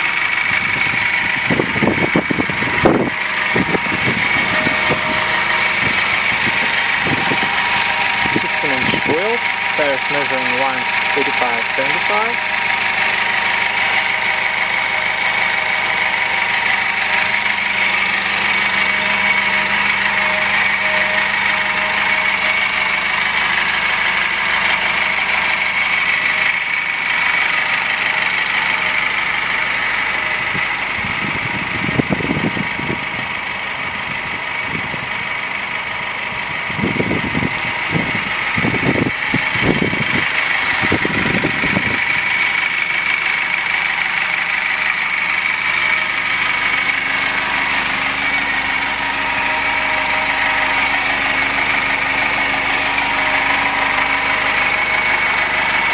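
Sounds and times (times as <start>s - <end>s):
dull low rumbles: 0.0s - 24.1s, 36.4s - 55.9s
diesel engine idling: 0.0s - 55.9s.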